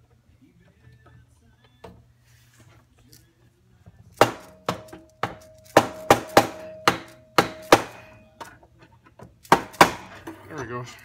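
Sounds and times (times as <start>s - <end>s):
hammer striking chisel: 4.2s - 8.2s, 9.5s - 10.3s.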